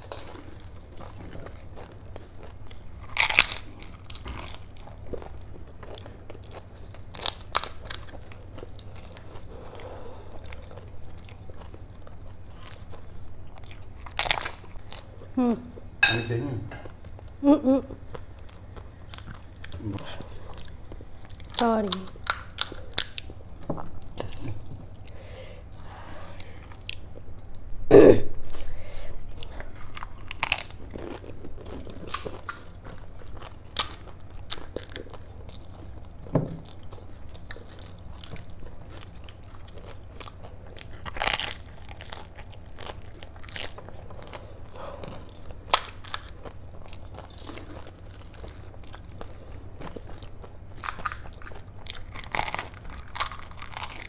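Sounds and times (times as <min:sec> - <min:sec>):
crisp shells crunching: 0:49.9 - 0:54.0.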